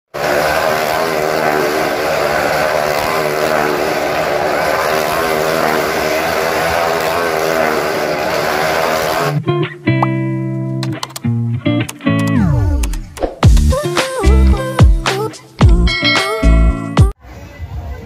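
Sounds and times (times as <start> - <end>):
motorcycle engine at high revs: 0.1 - 9.4.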